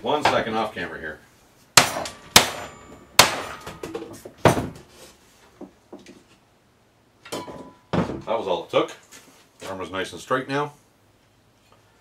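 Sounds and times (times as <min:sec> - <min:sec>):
hammer striking metal: 0:01.8 - 0:04.0.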